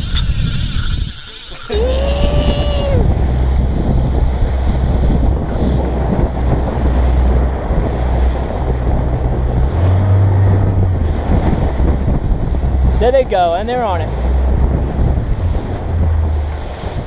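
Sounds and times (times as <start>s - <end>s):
boat wake rushing: 0.0s - 17.0s
outboard motor running: 0.0s - 17.0s
wind buffeting microphone: 0.0s - 17.0s.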